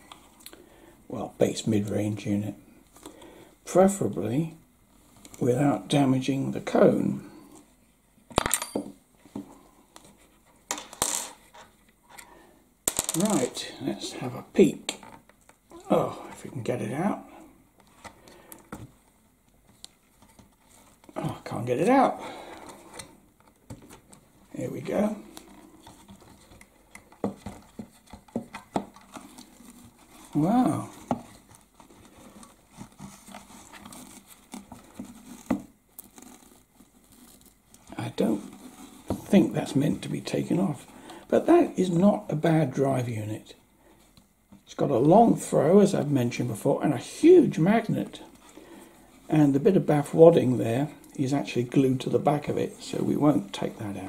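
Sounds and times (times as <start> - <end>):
rustling of fibre wadding: 23.7 - 41.2.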